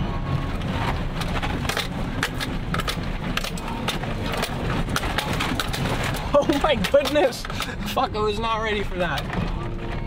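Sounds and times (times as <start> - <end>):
truck engine running low: 0.0 - 8.5
knocks and rattles: 0.6 - 7.9, 9.0 - 10.0.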